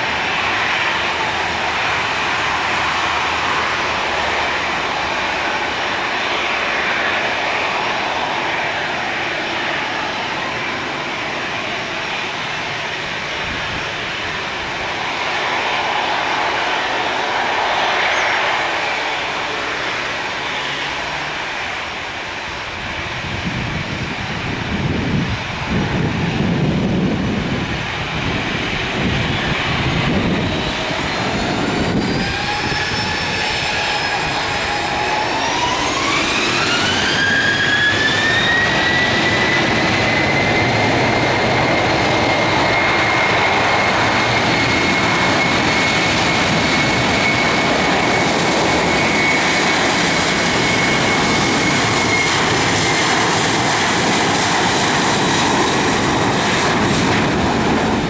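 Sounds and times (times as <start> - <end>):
jet engine fan whine: 0.0 - 58.0
jet engine roar: 0.0 - 58.0.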